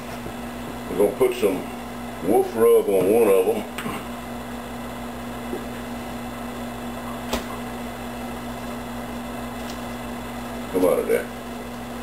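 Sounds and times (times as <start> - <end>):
low electrical hum: 0.0 - 12.0
sharp click: 7.3 - 7.5.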